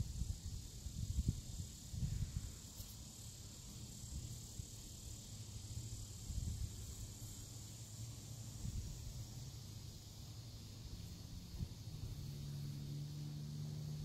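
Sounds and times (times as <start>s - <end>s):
high-pitched insect drone: 0.0s - 14.0s.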